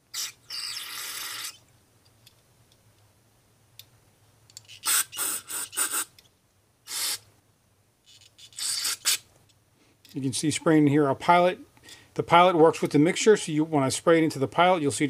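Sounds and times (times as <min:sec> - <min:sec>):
aerosol spray hissing bursts: 0:04.8 - 0:06.1, 0:06.9 - 0:07.2, 0:08.6 - 0:09.2.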